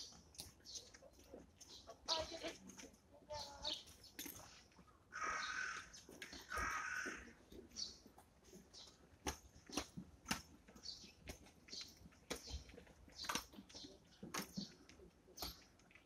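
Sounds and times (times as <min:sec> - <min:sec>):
sparrows chirping: 0:00.0 - 0:16.0
rough bird calls: 0:03.3 - 0:16.0.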